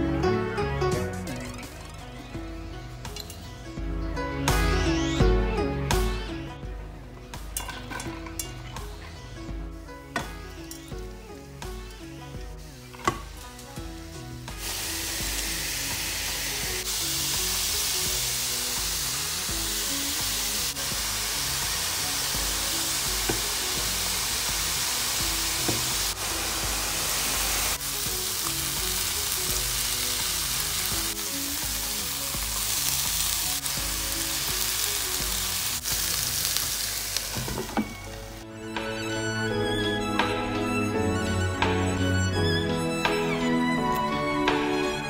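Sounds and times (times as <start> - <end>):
background music: 0.0 - 45.0
vegetables sizzling in oil: 10.5 - 38.4.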